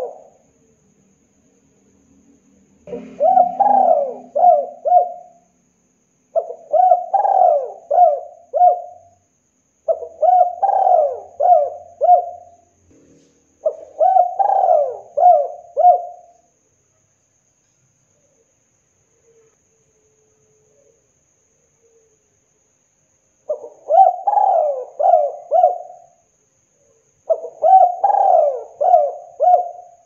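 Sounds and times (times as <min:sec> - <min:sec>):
dove cooing: 0:00.0 - 0:00.4, 0:02.9 - 0:05.4, 0:06.4 - 0:09.1, 0:09.9 - 0:12.6, 0:13.6 - 0:16.4, 0:23.5 - 0:26.1, 0:27.3 - 0:30.0.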